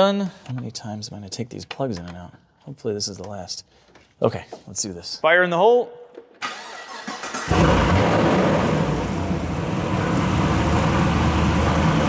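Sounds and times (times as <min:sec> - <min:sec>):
engine cranking on starter: 0:06.4 - 0:09.1
car engine idling: 0:07.4 - 0:12.0.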